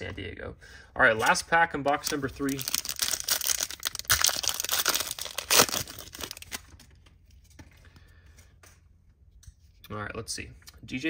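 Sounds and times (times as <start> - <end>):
foil pack tearing and crinkling: 2.4 - 6.8.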